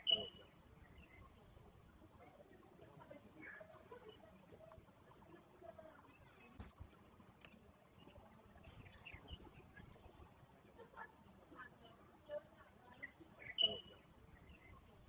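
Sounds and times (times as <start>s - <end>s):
faint high-pitched whine: 0.0s - 15.0s
small click: 7.4s - 7.6s.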